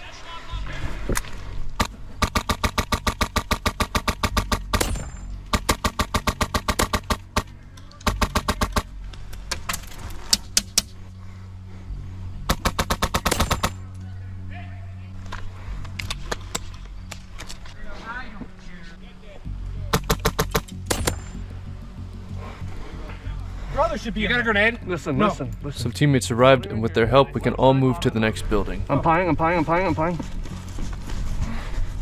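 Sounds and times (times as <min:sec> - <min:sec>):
airsoft guns firing bursts: 0:01.8 - 0:09.0, 0:12.5 - 0:13.8, 0:19.9 - 0:21.4.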